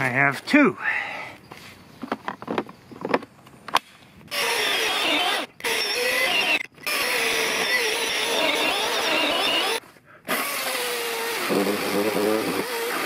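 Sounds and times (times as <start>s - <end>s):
electric chainsaw cutting log: 4.3s - 13.0s.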